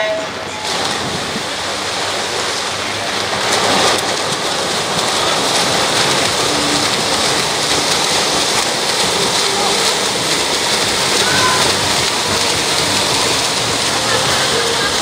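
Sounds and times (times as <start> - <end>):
swimmers splashing: 0.0 - 15.0.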